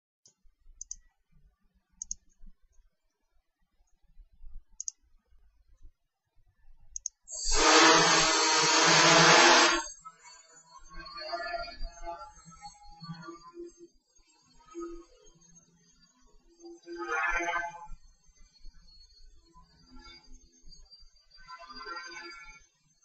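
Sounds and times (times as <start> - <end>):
faint clicks: 0.2 - 1.2, 2.0 - 2.8, 4.8 - 5.0, 6.9 - 7.2
drone propellers whirring: 7.4 - 9.9.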